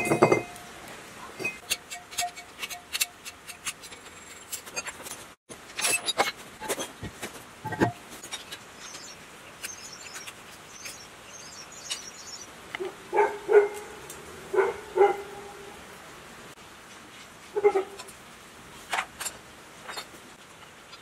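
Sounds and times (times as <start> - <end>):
dog barking: 13.1 - 13.9, 14.5 - 15.5.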